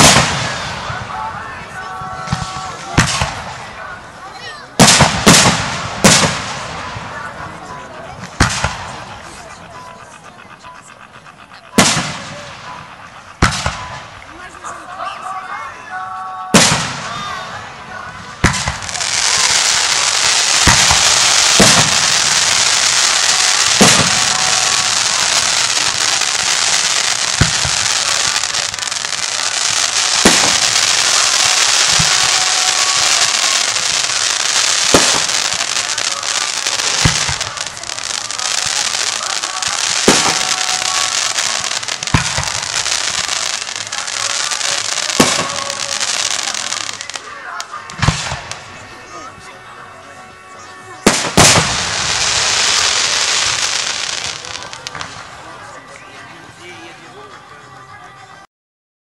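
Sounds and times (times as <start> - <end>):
firework shells bursting: 0.0 - 1.1, 18.3 - 48.7, 51.0 - 55.4
dense firework crackling: 0.0 - 56.6.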